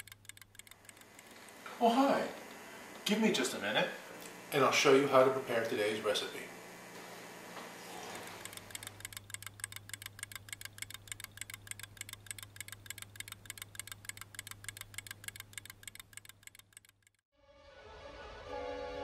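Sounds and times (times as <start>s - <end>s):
rapid clicking: 0.0s - 1.6s, 8.2s - 17.2s
steady low hum: 0.0s - 17.0s.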